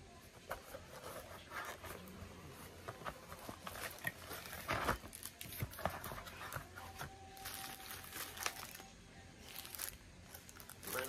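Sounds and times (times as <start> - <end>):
cardboard packaging rustling: 0.4 - 11.0
plastic bag crinkling: 7.3 - 11.0.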